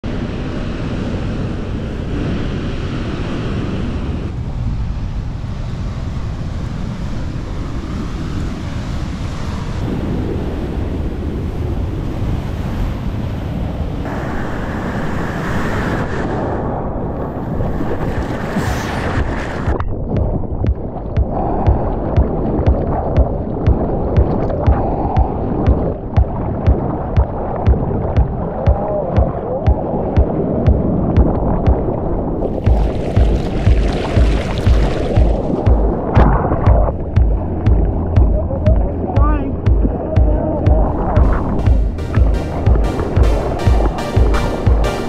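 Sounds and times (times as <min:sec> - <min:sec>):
ocean surf breaking: 0:00.0 - 0:19.8, 0:20.6 - 0:45.0
wind buffeting microphone: 0:00.0 - 0:43.9
water splashing close: 0:17.8 - 0:39.0.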